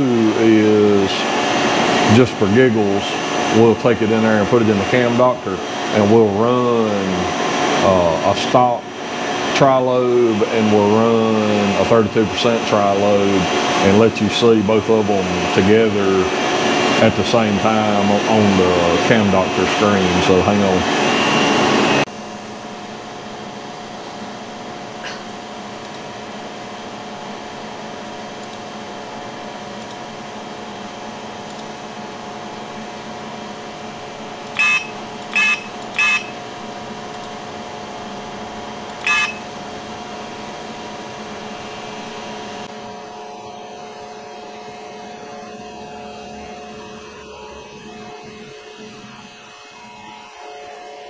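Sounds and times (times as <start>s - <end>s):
loud noise cut off: 0.0s - 24.0s
electrical hum of shop equipment: 0.0s - 51.0s
high electronic beeps: 34.6s - 36.4s, 39.0s - 39.5s.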